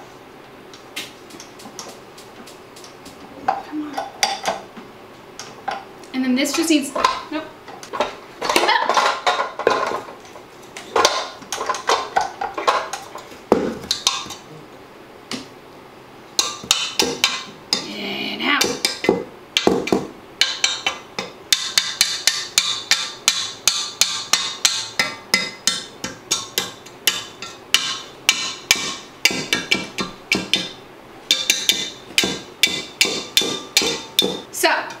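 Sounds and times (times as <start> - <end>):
mixer whisk striking metal bowl: 16.4 - 17.9, 18.6 - 34.5.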